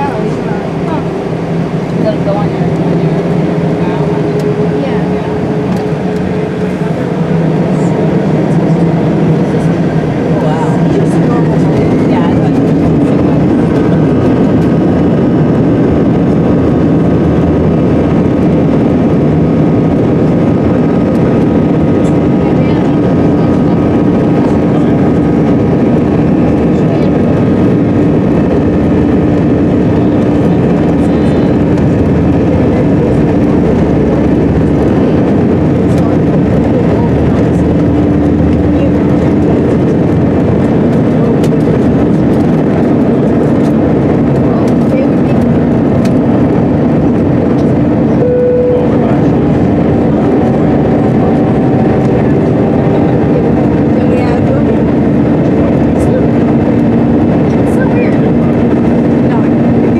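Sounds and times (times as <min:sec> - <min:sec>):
jet engine noise inside cabin: 0:00.0 - 0:59.9
brief high tone: 0:48.2 - 0:53.5.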